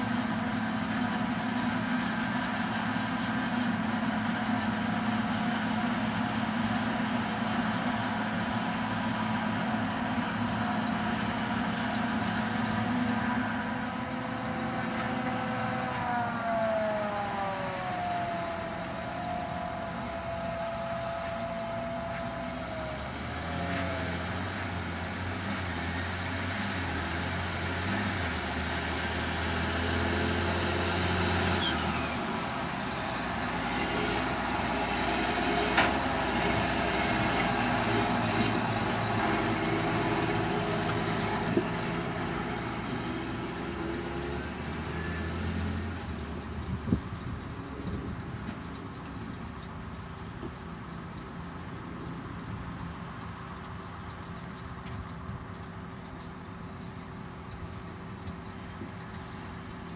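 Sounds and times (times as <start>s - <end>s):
tractor diesel engine: 0.0s - 59.9s
machine whine: 14.8s - 24.2s.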